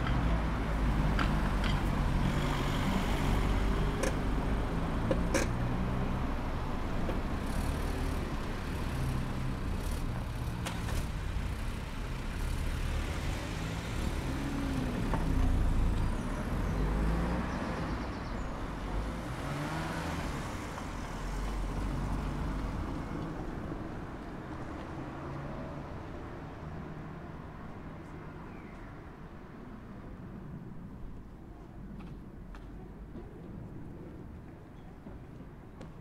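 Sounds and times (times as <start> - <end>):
cars driving past: 0.0 - 27.8.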